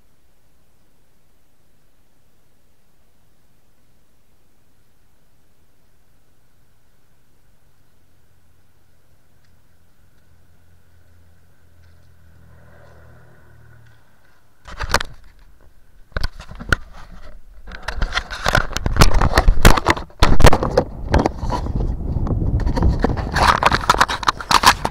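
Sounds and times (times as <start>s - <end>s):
faint steady hum: 0.0s - 24.9s
scraping and crackling on gravel and ice: 11.8s - 24.9s
camera handling noise: 14.6s - 15.5s, 16.1s - 21.7s.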